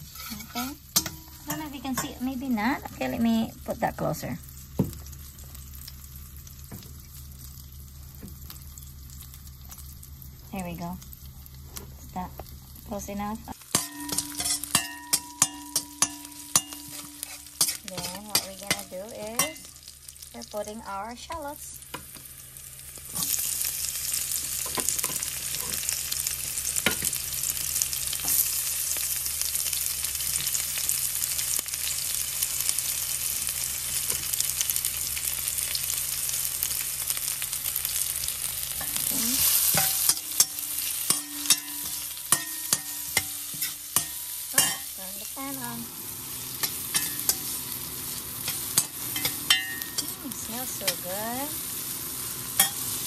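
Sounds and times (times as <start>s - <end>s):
metal spoon scraping a pot: 0.0s - 2.2s, 13.7s - 19.7s
shallots sizzling in hot oil: 0.0s - 53.0s.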